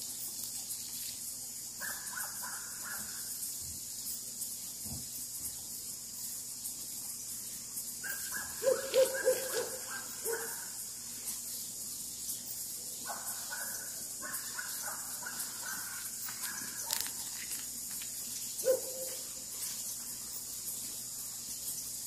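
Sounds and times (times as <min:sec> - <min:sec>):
low hooting calls: 0:08.1 - 0:10.7.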